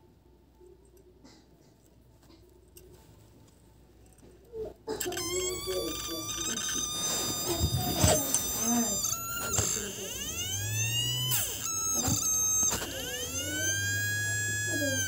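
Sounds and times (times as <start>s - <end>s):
hard drive motor whining: 4.9s - 15.0s
sharp clicks: 5.0s - 15.0s.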